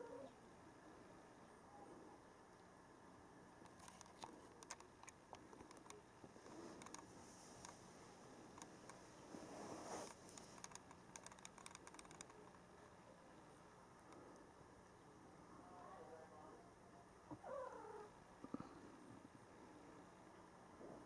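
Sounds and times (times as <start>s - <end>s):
faint clicks: 3.6s - 7.8s, 10.1s - 12.7s
soft rustle: 3.7s - 13.0s.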